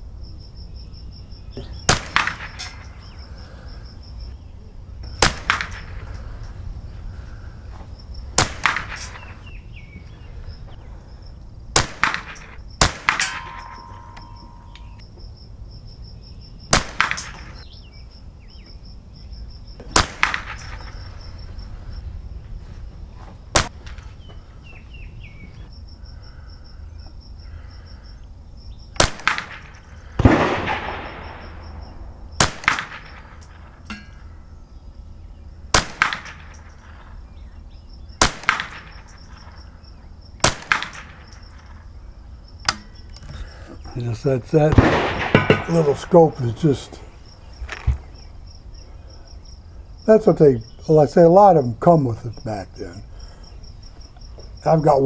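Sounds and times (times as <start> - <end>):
rifle shots: 1.9 - 3.1, 5.1 - 6.1, 8.3 - 9.3, 11.8 - 14.7, 16.7 - 17.6, 19.9 - 21.1, 23.6 - 24.0, 29.0 - 33.7, 35.7 - 36.8, 38.2 - 39.5, 40.4 - 41.8, 44.6 - 46.9.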